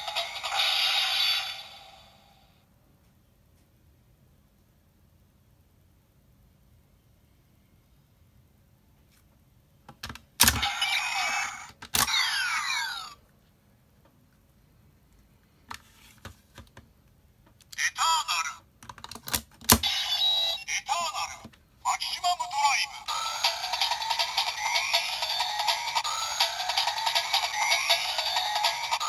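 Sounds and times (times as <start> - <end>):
toy electronic sound effects: 0.0 - 2.2, 10.4 - 13.2, 19.8 - 29.0
electronic voice call: 17.8 - 18.6, 19.8 - 23.7.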